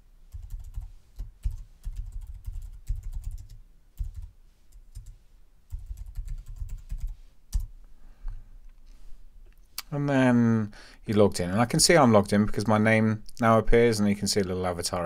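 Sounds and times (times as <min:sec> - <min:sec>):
computer keyboard typing: 0:00.3 - 0:07.7.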